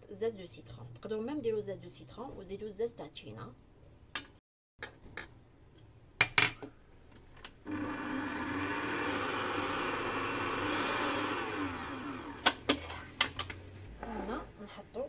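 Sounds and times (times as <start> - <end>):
stand mixer motor humming: 7.7 - 12.7.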